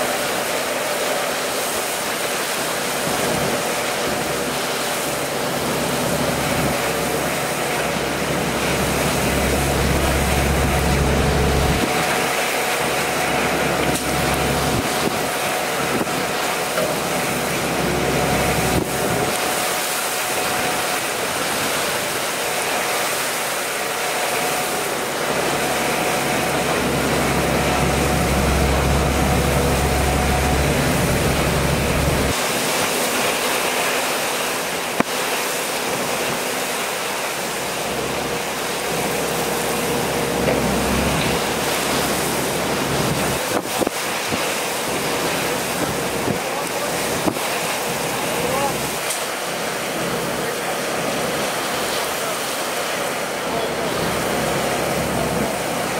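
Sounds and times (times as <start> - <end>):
heavy rain: 0.0 - 55.9
low hum: 8.5 - 12.2, 26.1 - 32.4.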